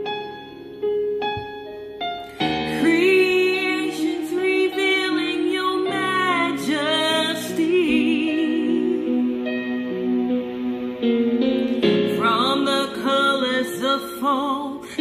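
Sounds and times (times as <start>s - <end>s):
keyboard accompaniment: 0.0s - 15.0s
piano chords: 0.0s - 15.0s
woman singing gospel song: 2.7s - 9.1s, 12.2s - 15.0s.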